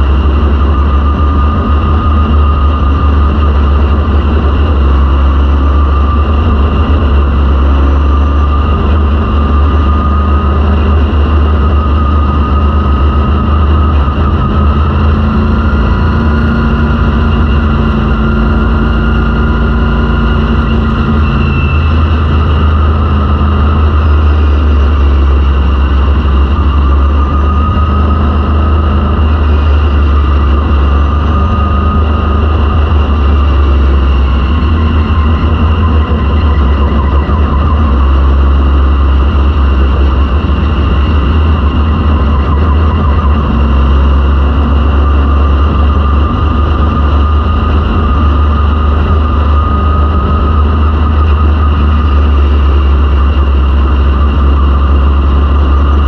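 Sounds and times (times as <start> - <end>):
race car engine running: 0.0 - 56.0.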